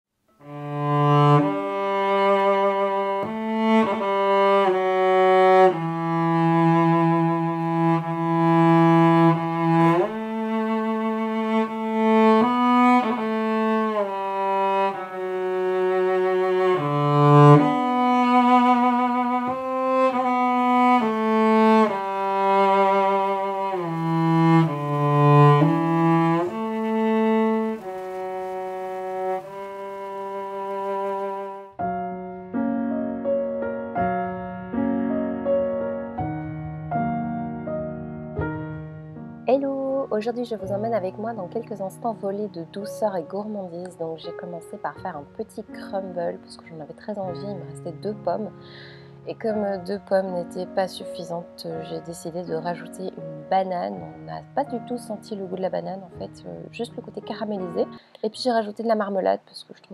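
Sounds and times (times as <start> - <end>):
cello playing slow melody: 0.4 - 59.4.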